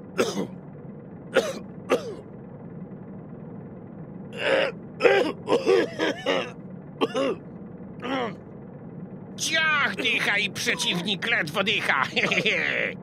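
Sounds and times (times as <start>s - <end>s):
steady low hum: 0.0s - 13.0s
elderly man's wordless vocal noises: 9.4s - 11.6s.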